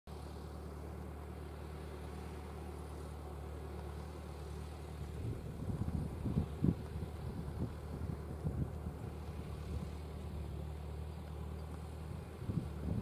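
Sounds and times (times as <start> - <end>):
tractor engine running: 0.1 - 13.0
wind buffeting microphone: 5.1 - 10.1, 12.1 - 13.0.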